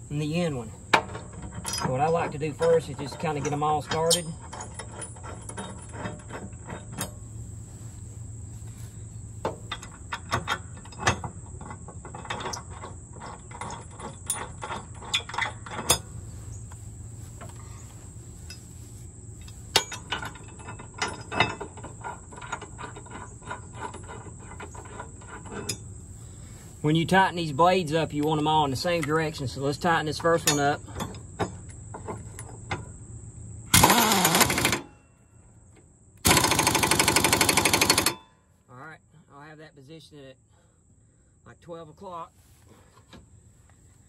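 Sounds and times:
high insect chirr: 0:00.0 - 0:44.0
metal clinks of mower blades: 0:00.2 - 0:07.3, 0:09.6 - 0:16.8, 0:19.4 - 0:25.9, 0:27.4 - 0:32.9
sharp metal knocks: 0:36.2 - 0:38.4.

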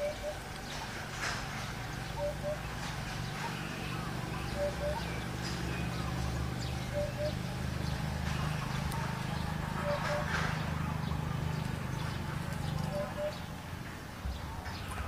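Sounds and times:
bird two-note call: 0:00.0 - 0:00.4, 0:03.4 - 0:06.1, 0:06.9 - 0:07.4, 0:12.9 - 0:13.4
high bird chirps: 0:00.0 - 0:13.6
low steady hum: 0:00.0 - 0:15.0.

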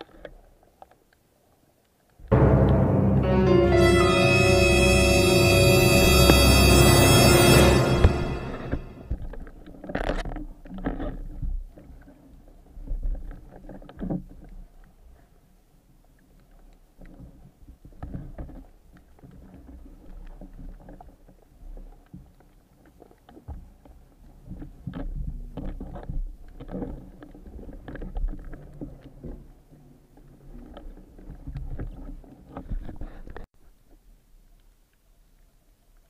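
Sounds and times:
knocks and clunks underwater: 0:08.7 - 0:15.3, 0:16.3 - 0:34.1.

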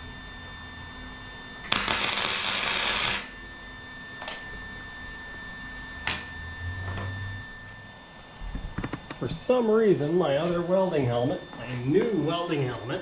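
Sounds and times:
arc welder crackling: 0:01.6 - 0:03.4.

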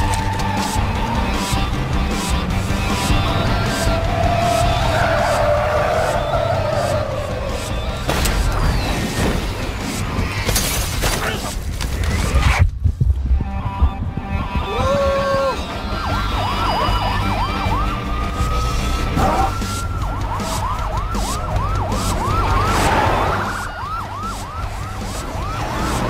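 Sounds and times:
police sirens yelping: 0:00.0 - 0:09.2, 0:14.5 - 0:26.0.

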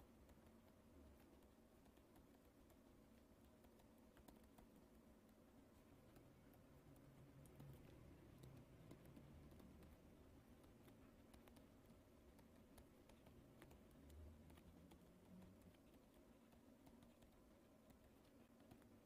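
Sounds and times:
stylus tapping on pen tablet: 0:00.0 - 0:19.0.

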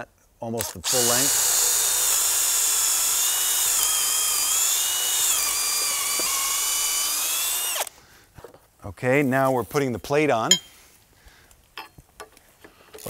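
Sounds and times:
cordless drill whining: 0:00.6 - 0:07.9.

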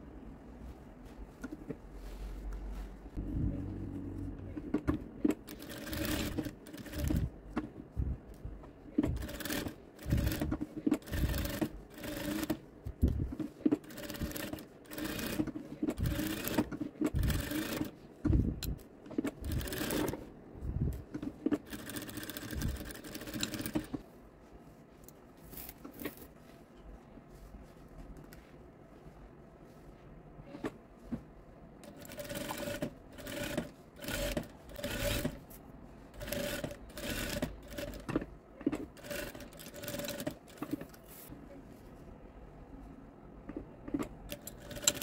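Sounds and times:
sewing machine stitching: 0:04.4 - 0:07.3, 0:08.9 - 0:12.6, 0:13.4 - 0:17.9, 0:19.2 - 0:20.2, 0:31.8 - 0:35.4, 0:36.2 - 0:40.9, 0:43.9 - 0:45.0.

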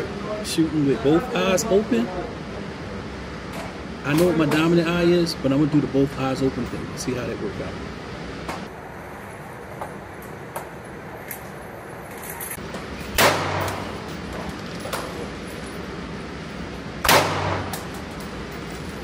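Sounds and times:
pistol shots indoors: 0:13.1 - 0:14.0, 0:17.0 - 0:18.1.

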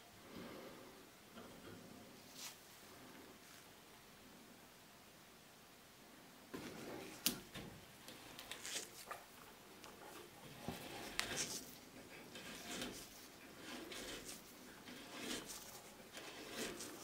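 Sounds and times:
soft rustling: 0:02.2 - 0:03.8, 0:06.5 - 0:17.0.

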